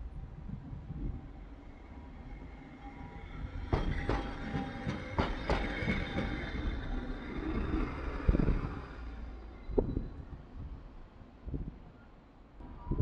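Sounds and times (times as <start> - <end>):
tram rumble: 0.0 - 13.0
tram wheels clacking over joints: 3.2 - 9.0.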